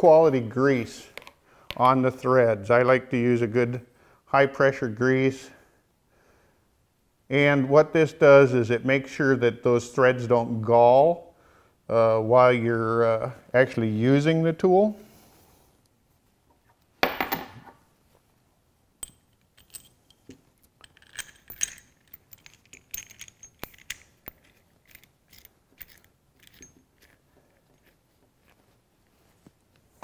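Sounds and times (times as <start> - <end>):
metal tool clicks and clinks: 19.0 - 28.0.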